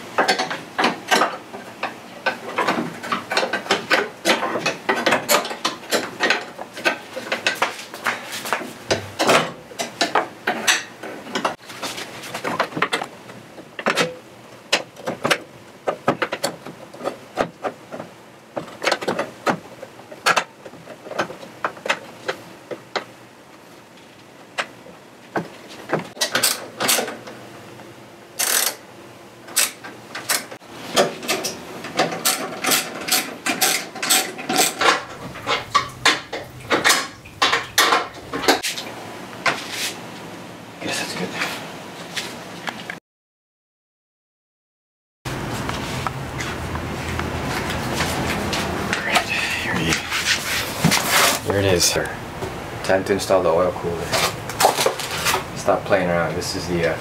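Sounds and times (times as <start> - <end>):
ratchet wrench clicking: 28.4 - 28.8
tools clinking and knocking: 31.0 - 38.7.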